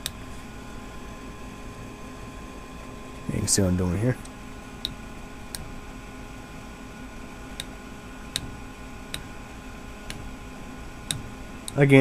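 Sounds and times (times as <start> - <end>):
faint steady hum: 0.0 - 12.0
fingers clicking plastic fan: 8.3 - 9.3, 11.1 - 11.8.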